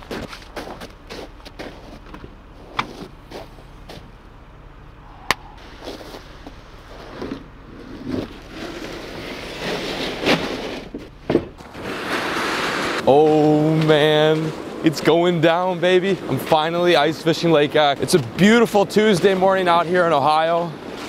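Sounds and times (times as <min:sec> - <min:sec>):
footsteps crunching on snow: 0:00.0 - 0:04.3, 0:05.5 - 0:14.6
plastic sled scraping: 0:05.6 - 0:21.0.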